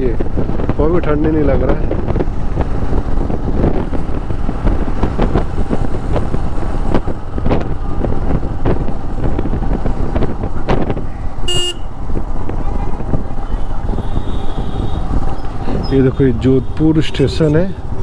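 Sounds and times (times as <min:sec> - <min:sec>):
wind buffeting microphone: 0:00.0 - 0:18.0
horn beeping: 0:11.4 - 0:11.9.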